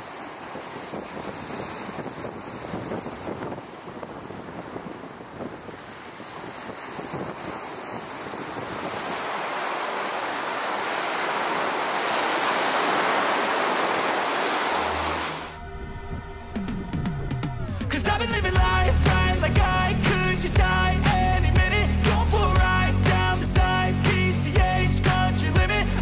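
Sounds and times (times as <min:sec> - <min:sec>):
breaking waves rushing: 0:00.0 - 0:15.6
wind buffeting microphone: 0:00.1 - 0:18.9
music: 0:15.5 - 0:26.0.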